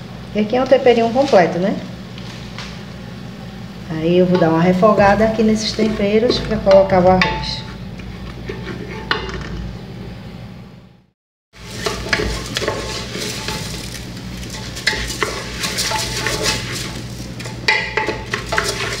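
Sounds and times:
light sizzle: 0:00.0 - 0:10.6, 0:11.5 - 0:19.0
spoon stirring rice in pot: 0:04.3 - 0:09.3, 0:11.6 - 0:19.0.

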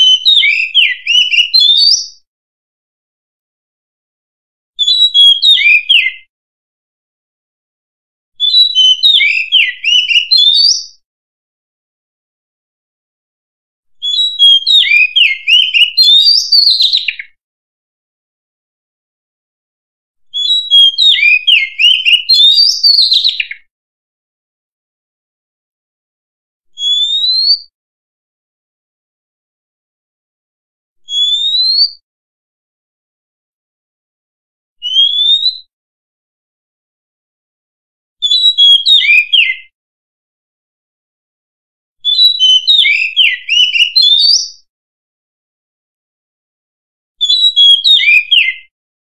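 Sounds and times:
bird singing whistled notes: 0:00.0 - 0:02.2, 0:04.8 - 0:06.3, 0:08.4 - 0:11.0, 0:14.0 - 0:17.4, 0:20.3 - 0:23.7, 0:26.8 - 0:27.7, 0:31.1 - 0:32.0, 0:34.8 - 0:35.7, 0:38.2 - 0:39.7, 0:42.0 - 0:44.7, 0:47.2 - 0:48.7.

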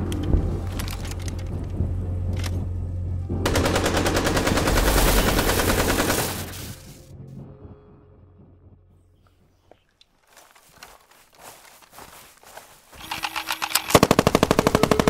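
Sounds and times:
steady low rumble: 0:00.0 - 0:09.7
automatic gunfire: 0:03.5 - 0:06.5, 0:13.0 - 0:15.0.

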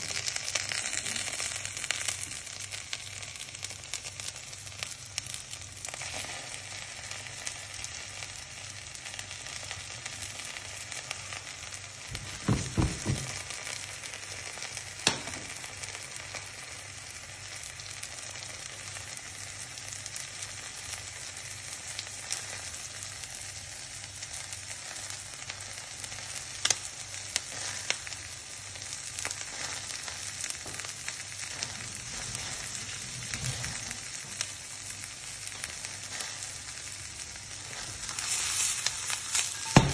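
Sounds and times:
mushroom slices sizzling in butter: 0:00.0 - 0:39.9
dull knocks: 0:12.2 - 0:13.4.

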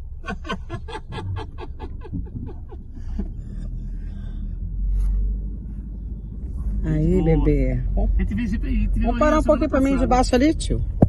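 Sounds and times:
low rumble of moving vehicle: 0:00.0 - 0:11.0.

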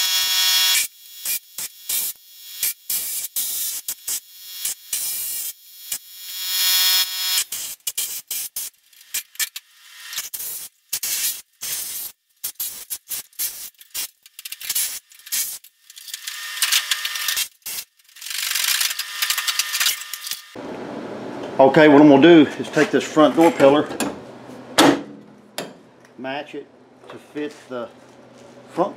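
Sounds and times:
pneumatic air tool whine: 0:00.0 - 0:20.6.

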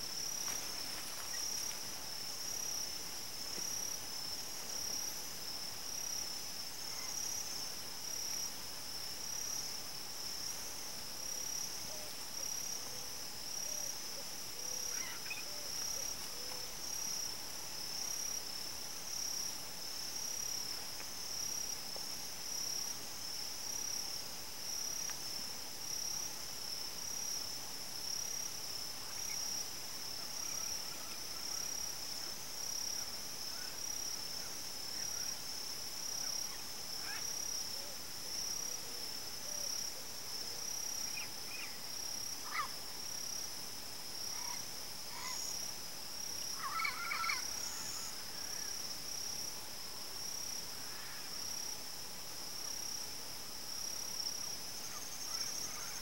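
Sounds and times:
insects trilling: 0:11.2 - 0:21.7, 0:29.0 - 0:43.4, 0:44.2 - 0:49.5, 0:53.9 - 0:56.0
faint bird calls: 0:46.6 - 0:48.7.

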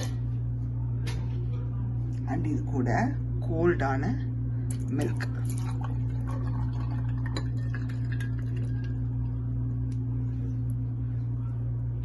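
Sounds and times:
low electrical hum: 0:00.0 - 0:12.0
milk pouring over ice: 0:05.0 - 0:09.4.

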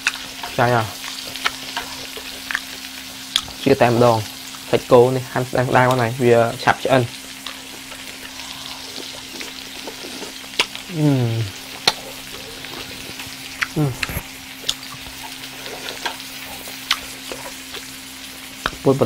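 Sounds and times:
food sizzling on a griddle: 0:00.0 - 0:19.0
sharp pops and clicks: 0:10.5 - 0:10.8.

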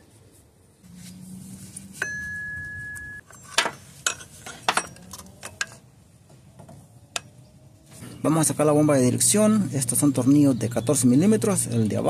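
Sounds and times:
high whine: 0:00.9 - 0:03.2
metal tools clinking: 0:02.0 - 0:05.8.

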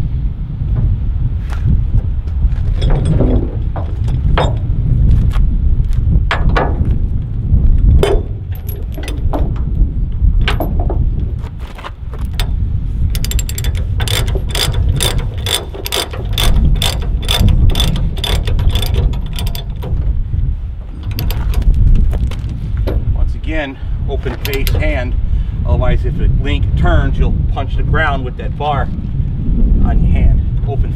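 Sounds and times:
low rumble: 0:00.0 - 0:30.9
chain clinking: 0:02.6 - 0:04.7, 0:08.0 - 0:09.7, 0:10.4 - 0:11.0, 0:12.1 - 0:23.1, 0:24.3 - 0:25.0
ratchet clicks: 0:08.0 - 0:09.7, 0:12.2 - 0:20.2, 0:20.8 - 0:23.0, 0:24.3 - 0:25.0.

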